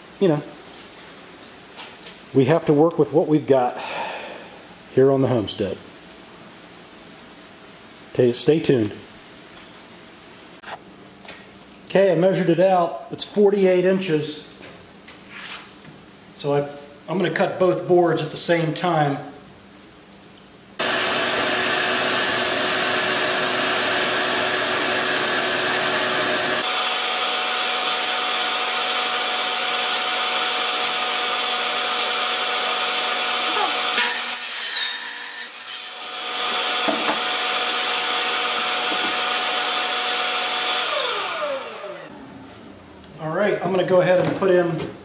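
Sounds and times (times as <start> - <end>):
miter saw cutting wood: 20.8 - 42.1.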